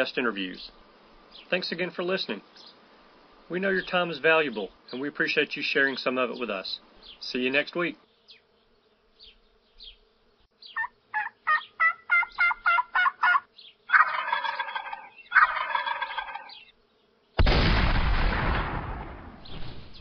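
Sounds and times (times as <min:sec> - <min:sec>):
turkey gobbling: 0:10.7 - 0:16.7
turkey yelping: 0:10.7 - 0:16.7
loud blast: 0:17.4 - 0:20.0.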